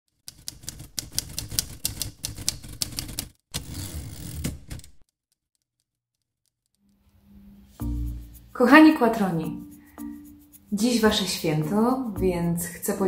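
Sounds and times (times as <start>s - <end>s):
typewriter keys clacking: 0.3s - 5.1s.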